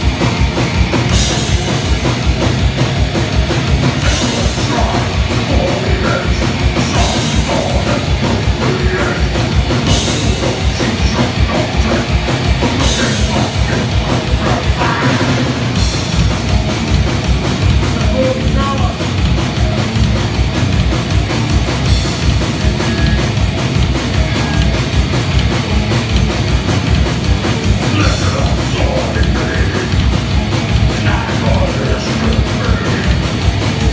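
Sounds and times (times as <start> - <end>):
fast drum beat: 0.0 - 33.9
heavy metal band playing: 0.0 - 33.9.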